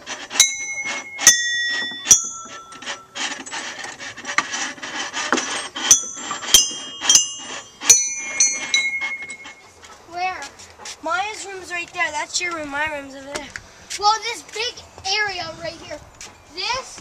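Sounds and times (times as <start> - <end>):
rubbing or scraping: 0.0 - 11.1
bell-like clinks: 0.4 - 3.1, 5.9 - 9.6.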